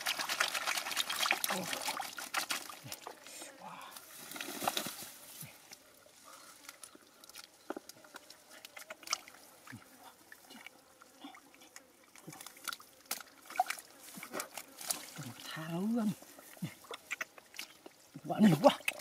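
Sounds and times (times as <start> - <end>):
hands squelching through wet mud: 0.0 - 3.2, 6.6 - 10.7, 12.1 - 19.0.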